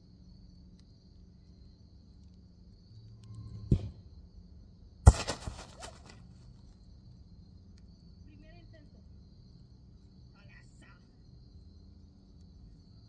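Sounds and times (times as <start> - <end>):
faint thump: 3.6 - 4.1
ball hitting goal net: 3.7 - 4.0, 5.0 - 6.2
net and frame rattling: 5.1 - 6.3.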